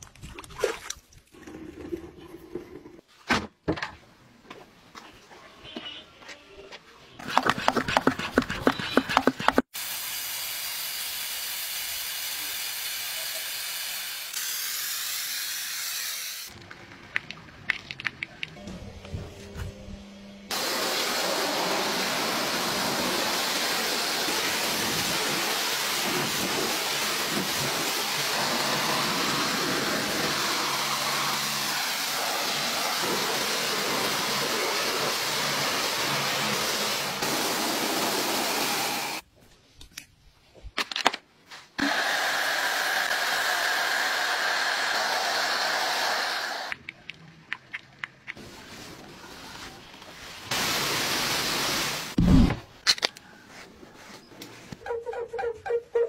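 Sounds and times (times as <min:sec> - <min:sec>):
pressure washer spraying hiss: 0:20.5 - 0:39.2, 0:50.5 - 0:52.2.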